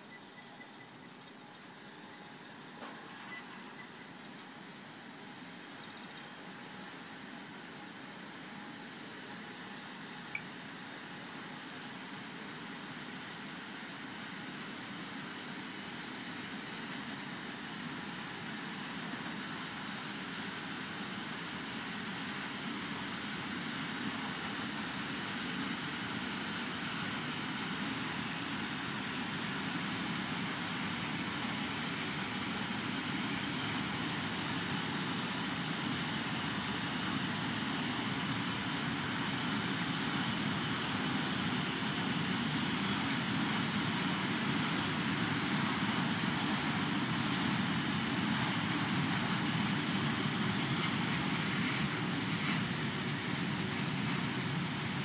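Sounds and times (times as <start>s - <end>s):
train wheels rumbling on rail: 21.9s - 55.0s.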